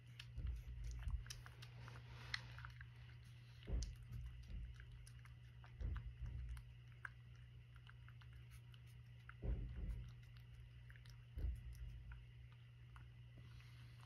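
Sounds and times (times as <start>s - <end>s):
soft low thumps: 0.0s - 1.7s, 3.4s - 7.0s, 9.4s - 12.5s
cat chewing food: 0.0s - 14.0s.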